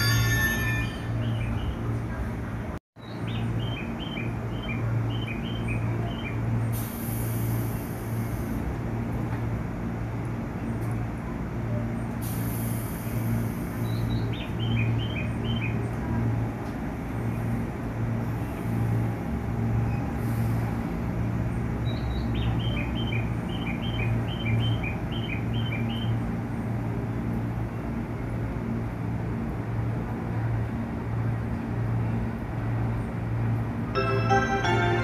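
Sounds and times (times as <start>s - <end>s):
electric train humming: 0.0s - 2.8s, 26.1s - 35.0s.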